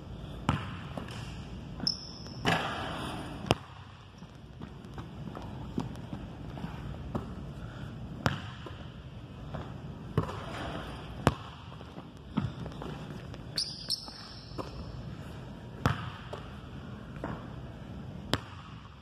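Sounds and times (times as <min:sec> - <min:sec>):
basketball bouncing on wooden floor: 0:08.2 - 0:08.8, 0:09.5 - 0:10.6.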